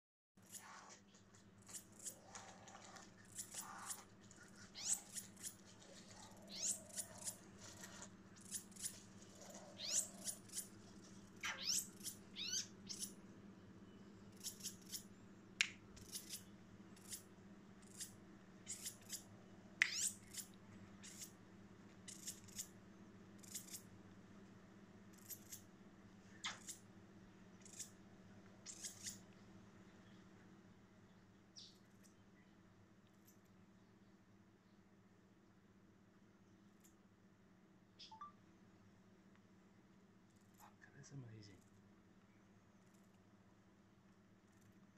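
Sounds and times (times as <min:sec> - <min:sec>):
bushbaby high-pitched squeaks: 0:03.4 - 0:10.7, 0:11.4 - 0:13.2, 0:18.7 - 0:21.3.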